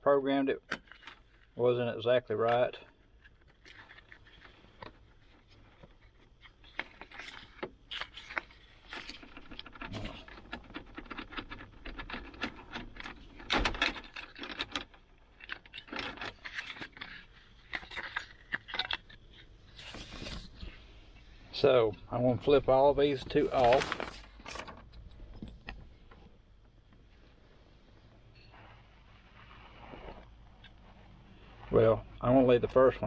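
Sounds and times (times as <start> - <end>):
plastic case clicking and scraping: 2.5 - 20.9.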